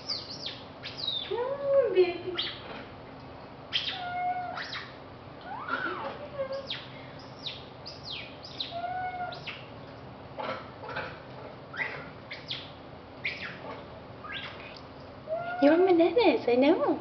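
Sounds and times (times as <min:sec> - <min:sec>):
high chirping calls: 0:00.0 - 0:01.5, 0:02.3 - 0:02.7, 0:03.7 - 0:09.8, 0:11.7 - 0:15.9.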